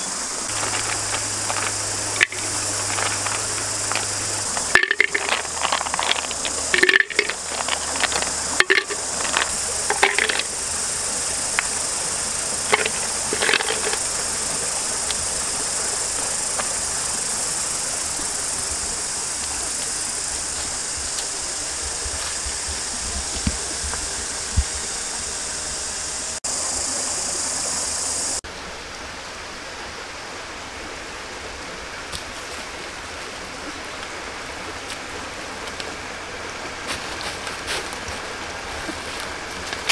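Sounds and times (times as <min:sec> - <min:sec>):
high-pitched insect drone: 0:00.0 - 0:28.4.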